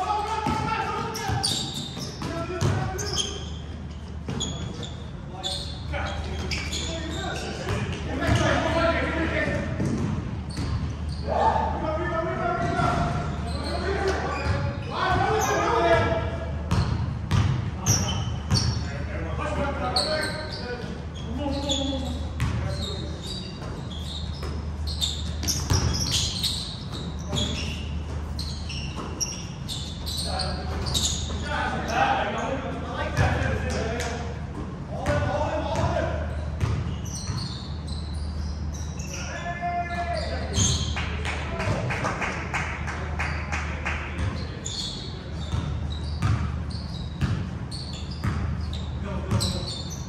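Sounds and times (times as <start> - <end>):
low ventilation hum: 0.0 - 50.0
sneakers squeaking: 0.0 - 50.0
basketball bouncing: 0.4 - 2.9, 7.7 - 8.8, 9.8 - 11.0, 16.7 - 18.8, 23.6 - 28.3, 36.6 - 37.5, 45.5 - 46.6, 47.2 - 47.5
basketball bouncing on hardwood: 9.8 - 10.8.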